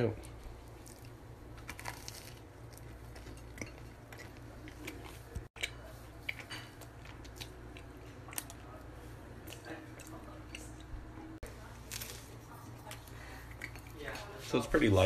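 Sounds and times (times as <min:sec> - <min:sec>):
person chewing toast: 0:00.2 - 0:10.9.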